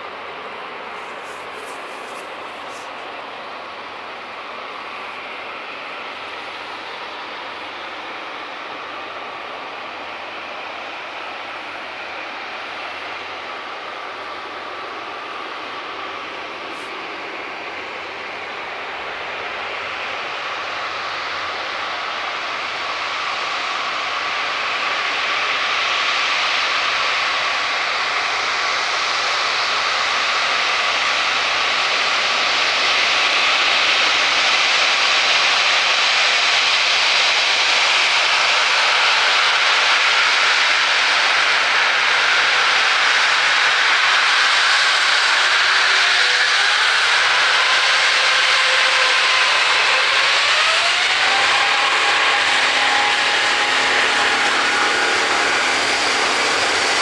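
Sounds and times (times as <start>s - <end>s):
jet engines whining at taxi power: 0.0s - 57.0s.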